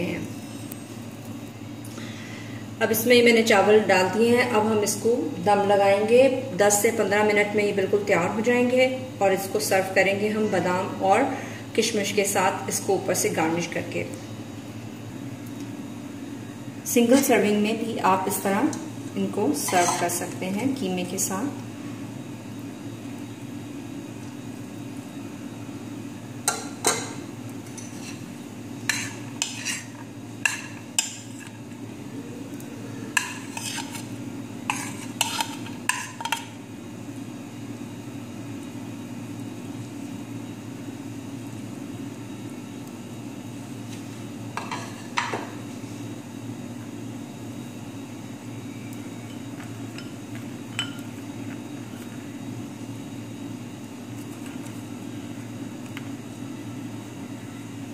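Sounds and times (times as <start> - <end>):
steady low hum: 0.0 - 57.9
metal spoon clinking on glass plate: 50.8 - 51.1.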